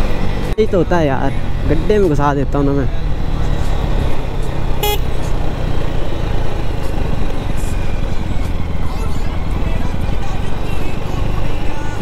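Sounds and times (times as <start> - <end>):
wind and road noise: 0.0 - 12.0
horn toot: 4.8 - 5.2.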